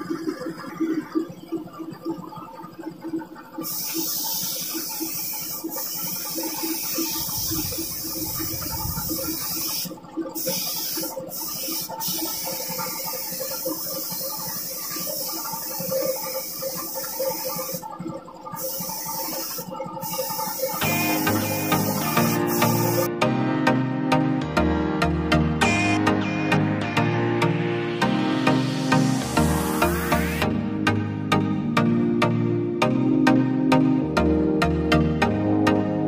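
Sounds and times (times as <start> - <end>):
paint spray gun hissing: 3.6 - 17.9, 18.6 - 23.1.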